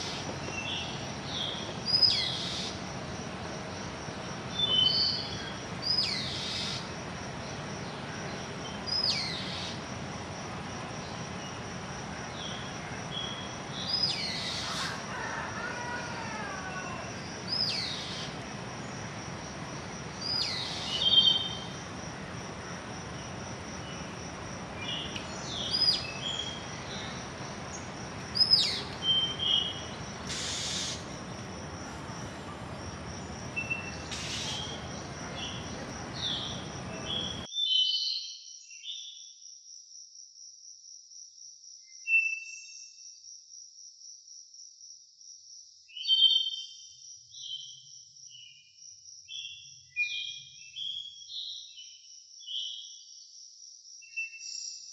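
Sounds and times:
small birds chirping: 0.0 - 10.0, 10.6 - 15.0, 16.8 - 37.5
background hiss: 0.0 - 37.5
insect trill: 0.0 - 37.5.

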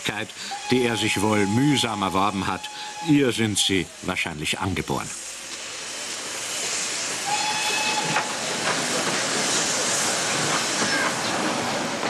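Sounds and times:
steam locomotive hissing: 0.0 - 12.0
steam whistle: 0.4 - 3.7, 7.2 - 8.4.

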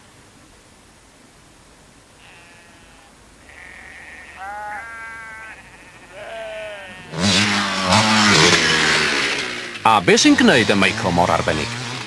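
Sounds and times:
sheep bleating: 2.2 - 9.3
loud motorcycle engine: 7.1 - 12.0.

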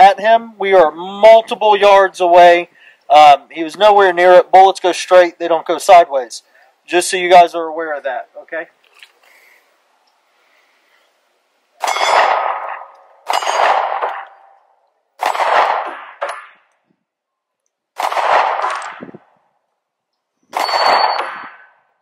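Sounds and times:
pistol shots: 11.8 - 14.6, 15.2 - 16.7, 18.0 - 19.2, 20.5 - 21.8
steel target ringing: 11.8 - 14.6, 20.6 - 21.8.

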